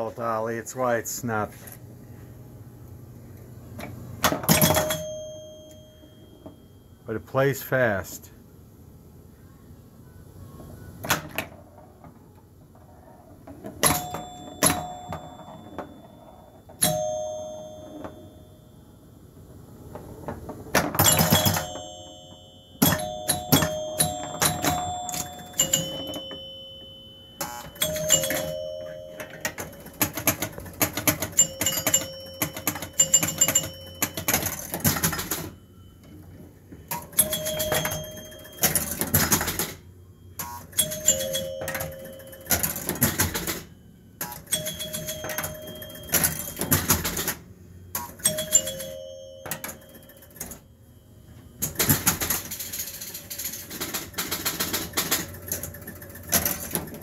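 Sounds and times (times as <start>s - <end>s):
pinball chimes ringing: 3.8s - 8.2s, 11.0s - 57.0s
pinball relays clicking: 4.2s - 5.8s, 13.5s - 18.2s, 20.5s - 35.6s, 36.9s - 39.8s, 40.4s - 50.6s, 51.6s - 57.0s.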